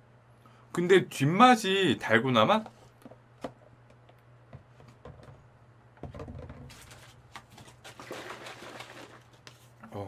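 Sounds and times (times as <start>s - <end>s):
steady low hum: 0.0s - 6.6s
paper cartons clicking and rustling: 6.2s - 9.7s.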